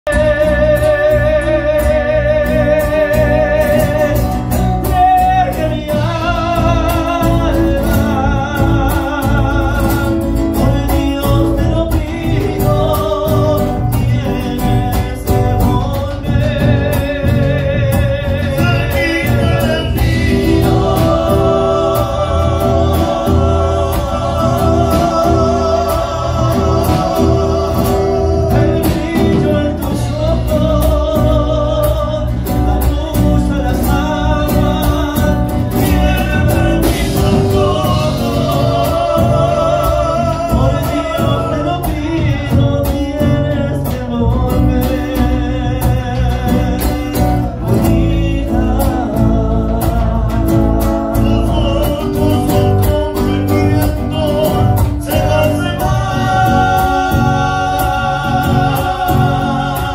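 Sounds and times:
bass: 0.0 - 59.9
drums: 0.0 - 59.9
strummed acoustic guitars: 0.1 - 59.9
men singing held notes: 18.5 - 30.5.

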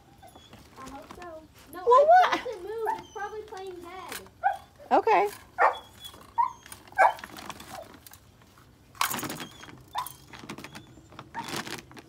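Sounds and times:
rustling: 0.2 - 12.0
dog barking and yipping: 2.3 - 3.6, 4.4 - 4.8, 5.5 - 7.9, 9.4 - 11.6.

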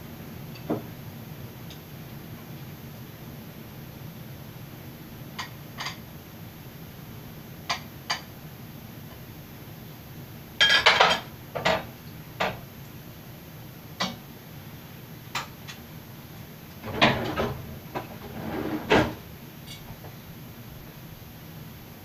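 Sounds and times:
dishes and utensils clattering: 10.6 - 12.6, 16.8 - 19.9.

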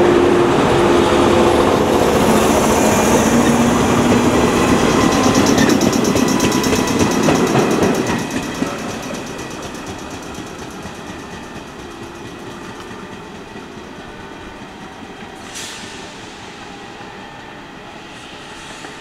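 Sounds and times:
train motor whine: 0.0 - 11.8
electric train pulling away: 0.0 - 19.0.

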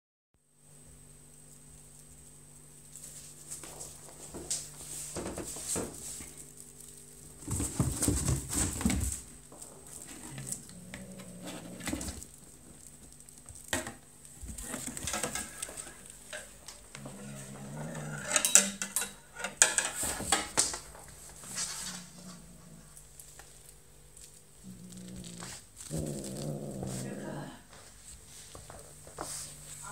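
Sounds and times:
rustles and clatter: 1.2 - 29.9
kitten paws scrabbling on cardboard: 3.0 - 10.7
kitten growling: 9.8 - 12.4, 17.0 - 18.4, 21.9 - 23.2, 24.6 - 27.7.

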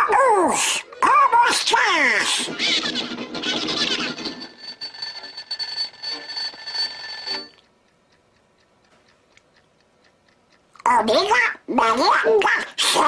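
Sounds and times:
clock ticking: 0.0 - 13.0
alarm clock bell ringing: 2.1 - 7.7.

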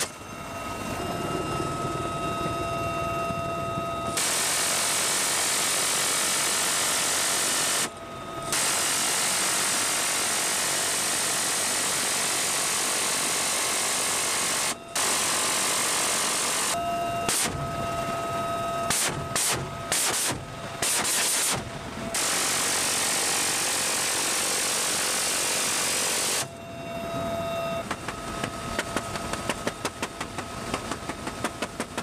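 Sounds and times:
helicopter engine whine: 0.0 - 32.0
minigun firing in bursts: 4.2 - 7.9, 18.9 - 26.5.

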